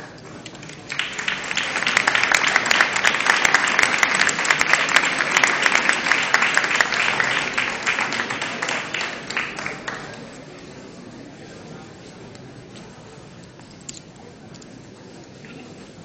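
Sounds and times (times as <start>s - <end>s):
audience applauding: 0.5s - 10.4s.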